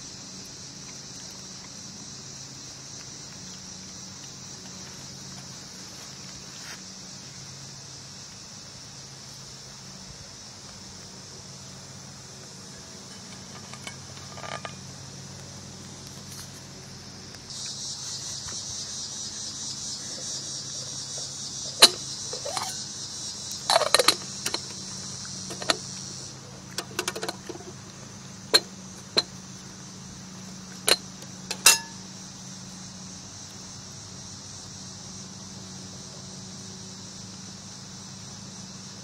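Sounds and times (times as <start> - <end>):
insects buzzing: 0.0 - 39.0
metallic clicks and knocks: 13.1 - 14.8, 21.7 - 22.8, 23.7 - 24.8, 25.5 - 25.8, 26.7 - 27.8, 28.5 - 29.3, 30.8 - 32.0.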